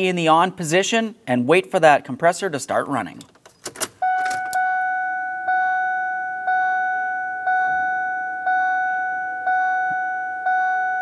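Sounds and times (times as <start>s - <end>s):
dashboard warning chime dinging: 4.0s - 11.0s.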